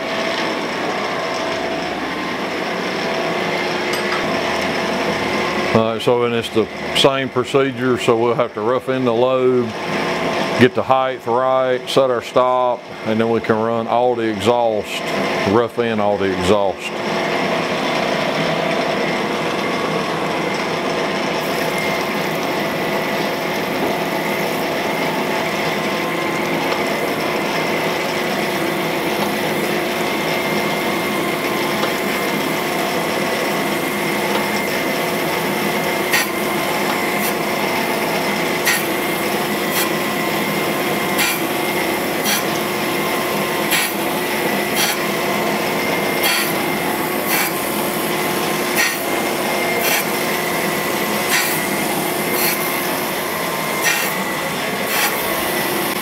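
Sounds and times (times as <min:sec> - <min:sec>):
machine hum: 0:00.0 - 0:56.0
grinding wheel hiss: 0:21.4 - 0:56.0.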